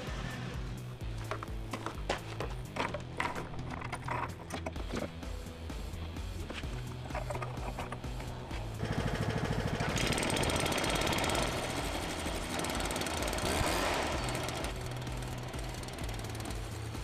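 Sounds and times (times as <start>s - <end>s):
mist blower engine revving: 8.0s - 17.0s.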